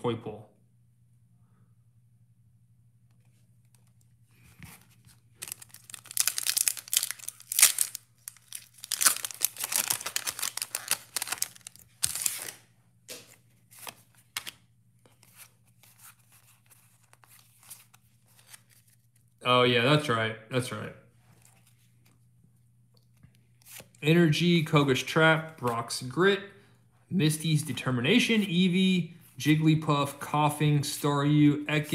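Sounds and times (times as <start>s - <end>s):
cards clicking: 4.6s - 14.6s
foil wrapper crinkling and tearing: 5.4s - 12.6s.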